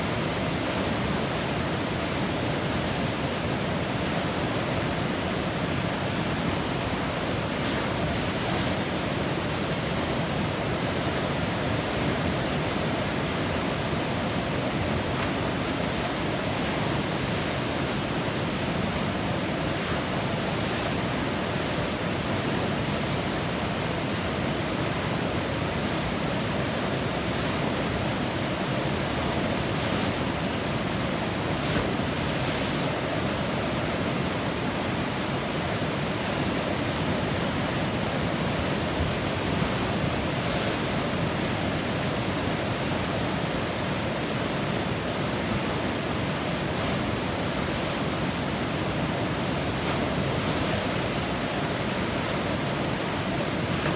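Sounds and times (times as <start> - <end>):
whitewater river rushing: 0.0 - 53.9.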